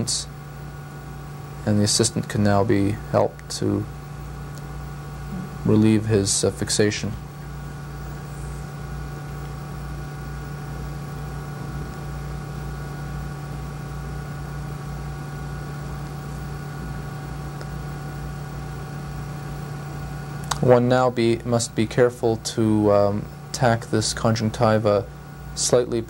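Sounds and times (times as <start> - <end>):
steady hum with tones: 0.0 - 26.0.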